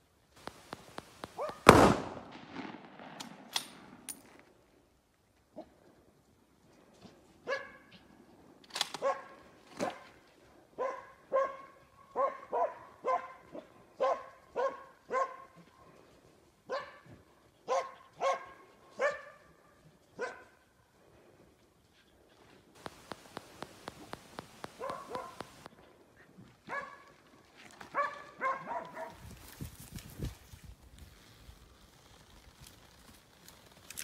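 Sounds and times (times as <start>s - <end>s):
dog barking: 1.4s - 1.6s, 7.4s - 8.0s, 9.0s - 10.1s, 10.8s - 15.6s, 16.7s - 17.1s, 17.7s - 19.5s, 20.2s - 20.6s, 24.6s - 25.7s, 26.7s - 27.1s, 27.9s - 29.2s.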